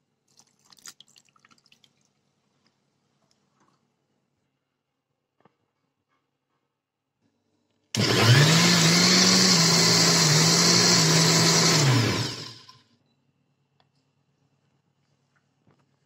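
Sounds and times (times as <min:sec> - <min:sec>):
electric blender running: 0:08.0 - 0:12.8.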